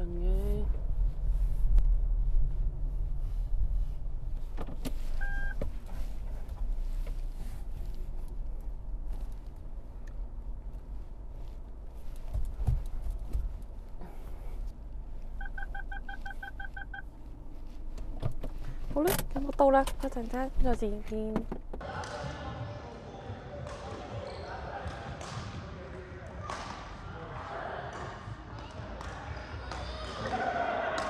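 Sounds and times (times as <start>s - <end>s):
car engine and road rumble: 0.0s - 21.8s
rapid parking sensor beeps: 5.2s - 5.6s, 15.4s - 17.1s
short electronic beeps: 5.2s - 5.6s, 15.4s - 17.0s.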